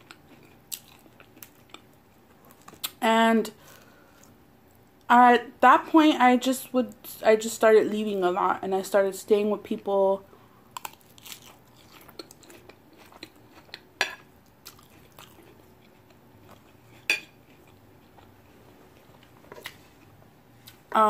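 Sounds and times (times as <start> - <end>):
chewing salad: 0.0 - 3.0, 10.7 - 20.8.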